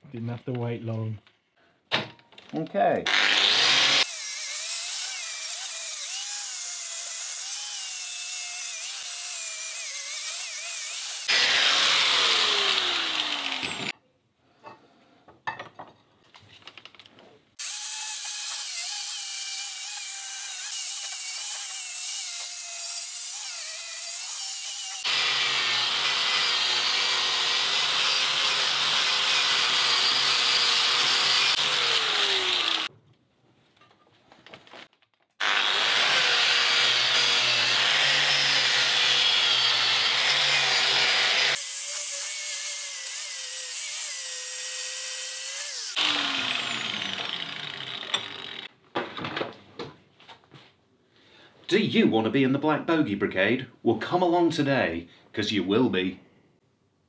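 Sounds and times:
wire wheel grinder scrubbing metal: 35.4 - 48.7.

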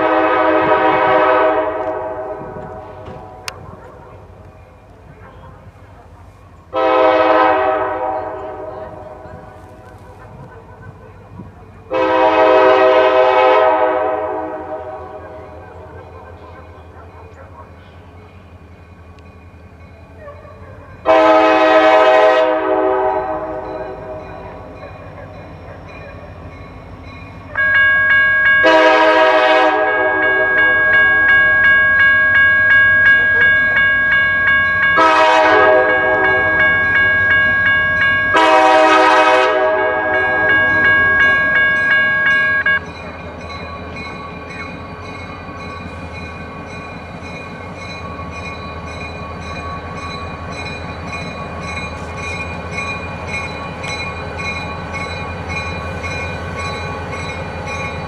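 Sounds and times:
locomotive horn chord: 0.0 - 3.6, 6.7 - 9.3, 11.9 - 15.6, 21.0 - 24.9, 27.5 - 31.6, 35.0 - 42.8
diesel engines rumbling: 0.0 - 27.6.

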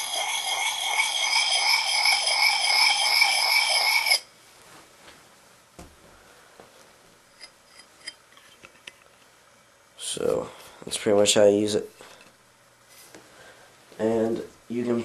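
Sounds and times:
stone grinding steel blade: 0.0 - 4.2.

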